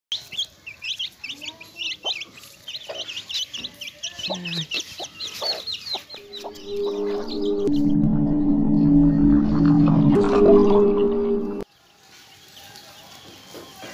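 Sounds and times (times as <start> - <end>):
chicks peeping: 0.1 - 7.8
hen clucking: 0.1 - 7.8
steady music tones: 6.2 - 11.6.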